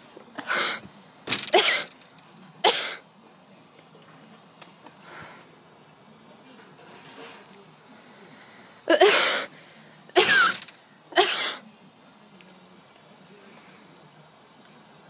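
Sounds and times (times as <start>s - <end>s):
person coughing harshly: 1.5s - 1.9s, 2.6s - 3.0s, 8.9s - 9.5s, 10.2s - 10.6s, 11.2s - 11.6s.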